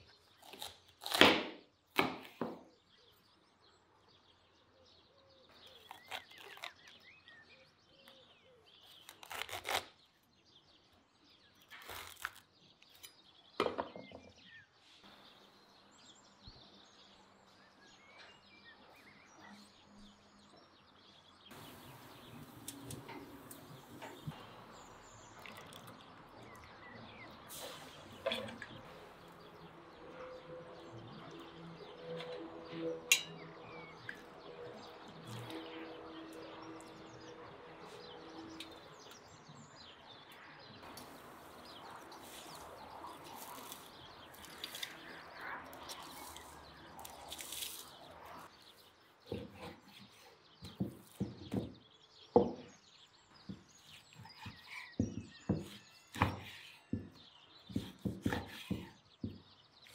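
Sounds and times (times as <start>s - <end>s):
birds chirping: 1.7s - 59.9s
knife slicing meat on board: 57.7s - 59.4s.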